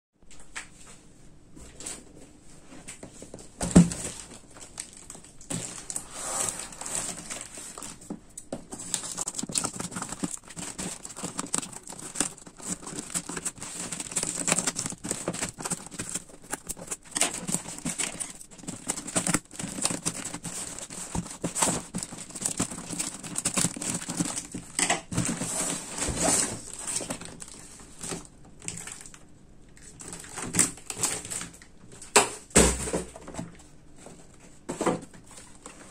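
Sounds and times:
cardboard crinkling and rustling: 0:01.6 - 0:35.9
scissors cutting packing tape: 0:08.9 - 0:24.5.

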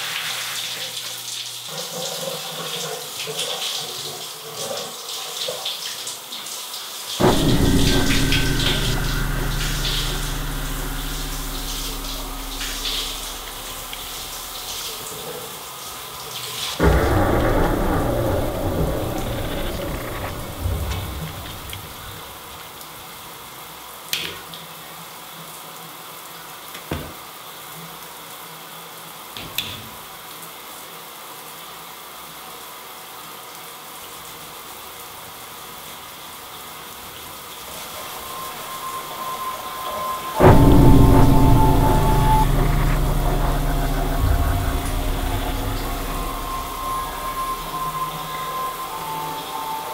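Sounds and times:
loud crash with rumbling decay: 0:07.2 - 0:14.8, 0:16.8 - 0:22.3, 0:40.4 - 0:49.7
low rumbling drone: 0:07.2 - 0:14.9, 0:16.8 - 0:22.3, 0:38.3 - 0:49.9.

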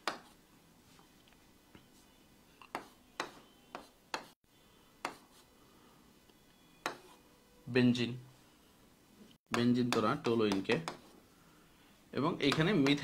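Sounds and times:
marker scraping on a whiteboard: 0:02.7 - 0:04.4, 0:05.0 - 0:05.5, 0:06.8 - 0:07.2, 0:09.6 - 0:11.2.

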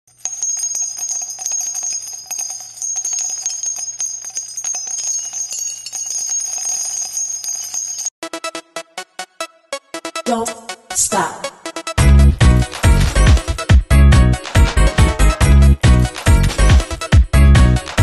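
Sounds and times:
bells ringing and jingling: 0:00.1 - 0:08.2, 0:12.8 - 0:18.0.

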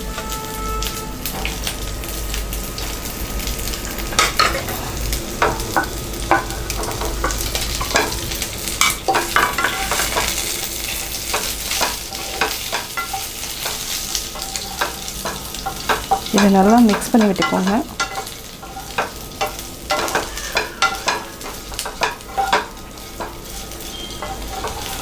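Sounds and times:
oil sizzling: 0:00.0 - 0:25.0
wooden spatula scraping a pan: 0:08.8 - 0:25.0.

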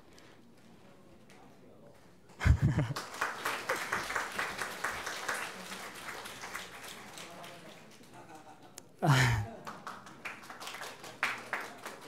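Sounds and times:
audience applauding: 0:02.8 - 0:08.2, 0:09.3 - 0:12.0.

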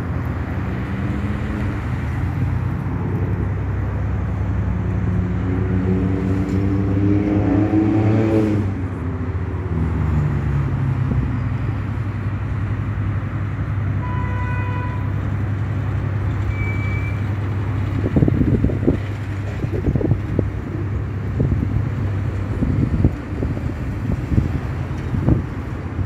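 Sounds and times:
vehicle engine passing by: 0:00.0 - 0:13.1
road traffic rumble: 0:00.0 - 0:26.0
vehicle horn: 0:14.0 - 0:15.2
wind buffeting microphone: 0:17.3 - 0:26.0.

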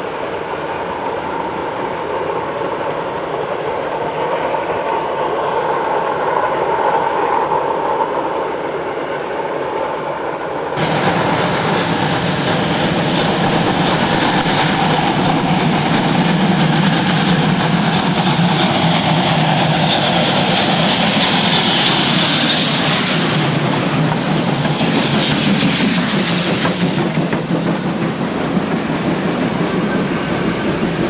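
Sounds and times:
steam hissing: 0:10.8 - 0:31.0
steam locomotive exhaust beats: 0:10.8 - 0:31.0.

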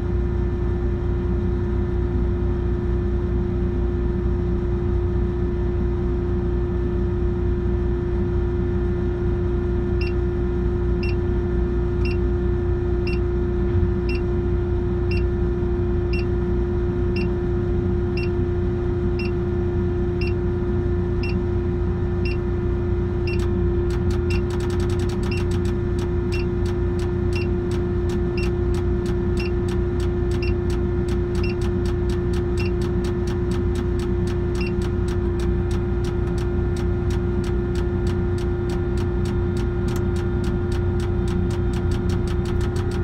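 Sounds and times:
short electronic beeps: 0:23.3 - 0:25.7, 0:26.3 - 0:27.6, 0:28.3 - 0:28.6, 0:29.3 - 0:33.6, 0:34.5 - 0:34.9
sharp ticking: 0:23.3 - 0:43.0.

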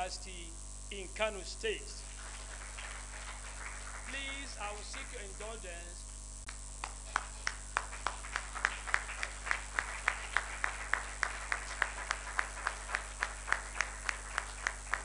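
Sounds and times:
audience clapping in unison: 0:02.0 - 0:05.6, 0:06.5 - 0:15.0
loose clapping: 0:06.5 - 0:15.0.

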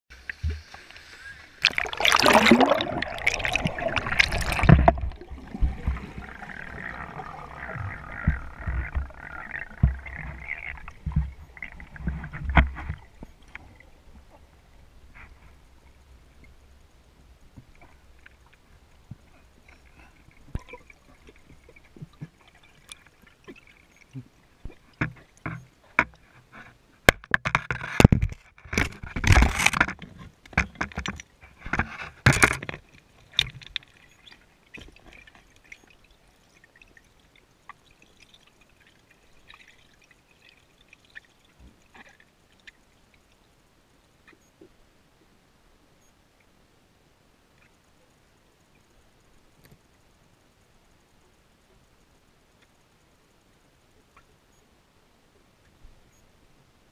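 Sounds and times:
loud bubbling gurgling bursts: 0:01.6 - 0:11.2
sharp underwater clicks and knocks: 0:01.6 - 0:14.3, 0:24.6 - 0:35.9.

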